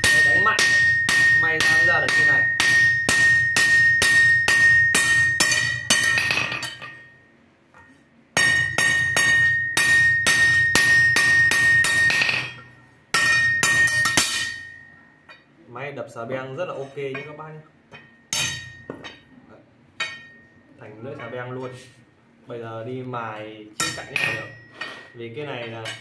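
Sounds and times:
hammer striking metal on anvil: 0:00.0 - 0:07.2, 0:07.8 - 0:15.5, 0:17.1 - 0:19.3, 0:20.0 - 0:20.6, 0:23.8 - 0:26.0
anvil ringing: 0:00.0 - 0:15.5, 0:17.2 - 0:19.3, 0:20.0 - 0:20.7, 0:23.8 - 0:25.2.

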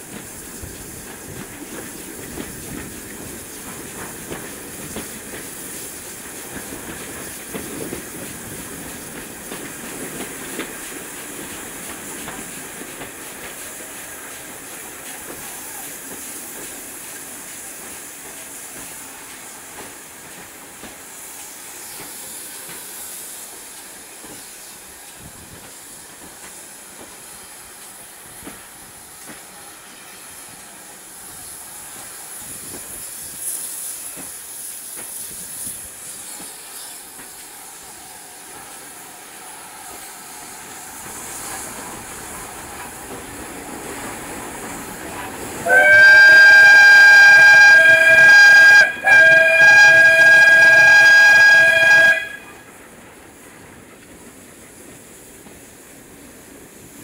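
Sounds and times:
steam hiss: 0:00.0 - 0:57.0
train rolling slowly: 0:00.0 - 0:57.0
steam whistle blowing: 0:45.6 - 0:52.6.

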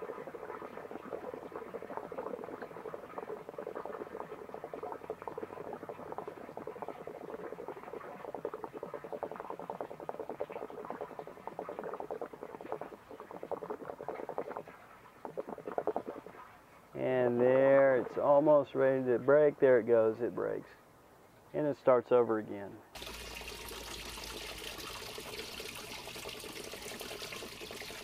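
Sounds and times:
water and air gurgling: 0:00.0 - 0:19.6, 0:23.0 - 0:28.0.

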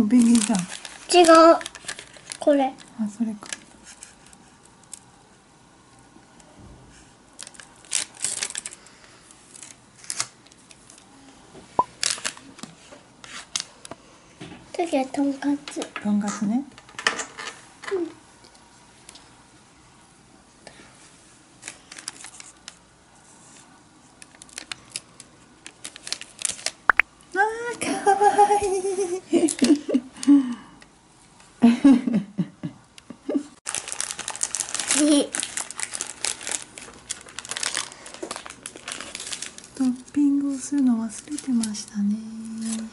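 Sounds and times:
plastic wrapper crinkling: 0:00.0 - 0:05.1, 0:07.3 - 0:08.8, 0:09.5 - 0:11.1, 0:12.0 - 0:12.6, 0:21.6 - 0:22.8, 0:24.2 - 0:27.0, 0:33.7 - 0:42.9.

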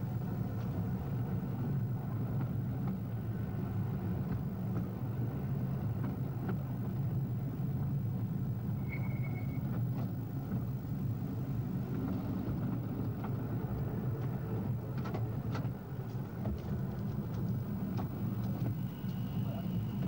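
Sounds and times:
miniature tram rumbling on track: 0:00.0 - 0:20.0
faint high steady tone: 0:08.8 - 0:09.7.

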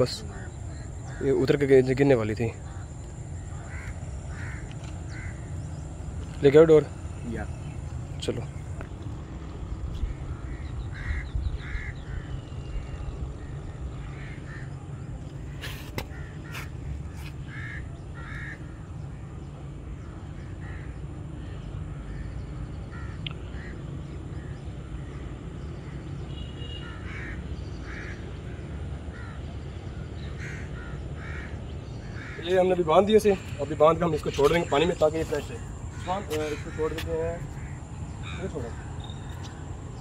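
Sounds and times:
crows cawing: 0:00.0 - 0:01.8, 0:02.4 - 0:06.2, 0:09.9 - 0:12.6, 0:13.4 - 0:19.3, 0:20.4 - 0:26.0, 0:26.6 - 0:29.6, 0:30.2 - 0:39.9
steady low rumble: 0:00.3 - 0:25.2, 0:35.0 - 0:40.0.

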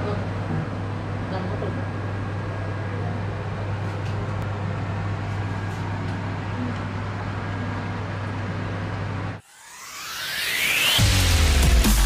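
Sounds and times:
low motor hum with hiss: 0:00.0 - 0:10.6.

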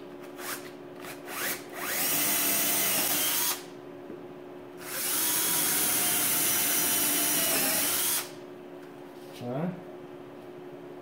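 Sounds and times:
power drill boring into wood: 0:01.3 - 0:03.6, 0:04.8 - 0:08.3.

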